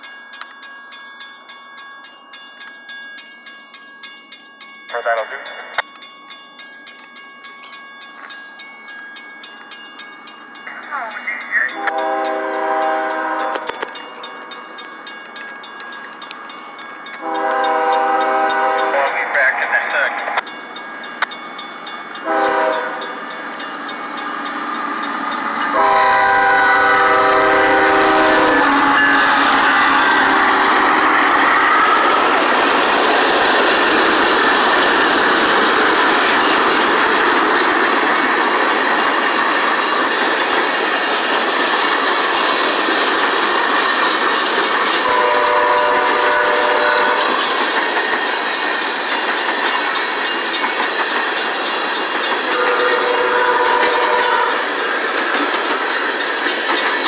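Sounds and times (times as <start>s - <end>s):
crossing signal bell ringing: 0.0s - 57.0s
steel wheels running on rails: 0.0s - 57.0s
locomotive air horn blasts: 11.7s - 13.7s, 17.2s - 19.0s, 22.2s - 23.1s, 25.7s - 32.0s, 45.1s - 47.2s, 52.6s - 54.6s
wheels clacking over rail joints: 29.1s - 57.0s.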